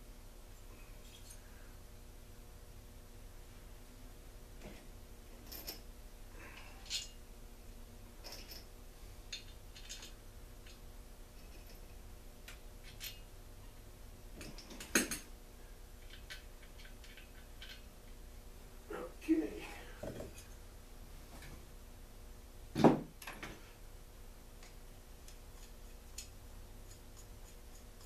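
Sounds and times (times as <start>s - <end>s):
metal parts and tools clinking: 5.4s - 5.9s, 6.6s - 7.2s, 8.2s - 8.7s, 9.3s - 10.8s, 11.4s - 11.9s, 12.8s - 13.3s, 16.0s - 17.9s.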